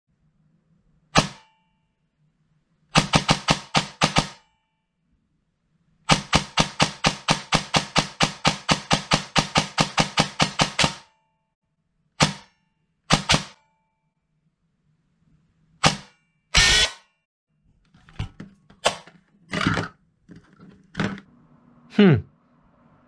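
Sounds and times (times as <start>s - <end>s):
airsoft gun firing bursts: 2.9s - 4.4s, 6.1s - 11.1s, 13.1s - 13.6s.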